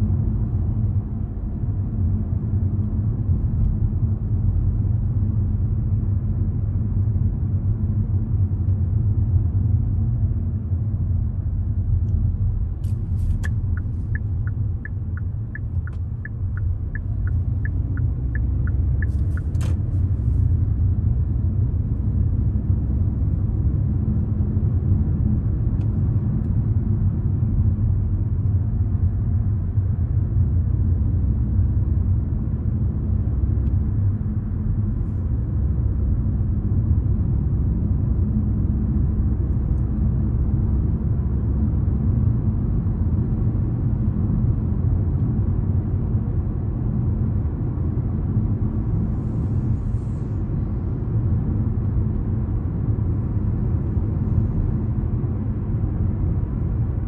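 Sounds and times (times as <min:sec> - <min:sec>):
car cabin road and engine rumble: 0:00.0 - 0:57.0
turn signal indicator ticking: 0:13.3 - 0:19.8.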